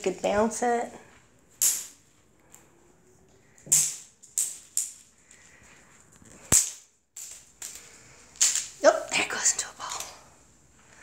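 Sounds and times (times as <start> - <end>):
plastic toy clattering on tile floor: 6.2 - 8.8.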